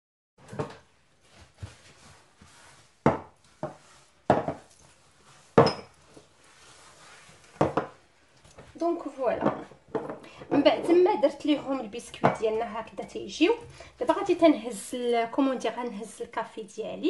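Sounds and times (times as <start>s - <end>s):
soft handling noise: 0.4s - 11.0s
glass bowls clinking on stone: 5.6s - 5.9s.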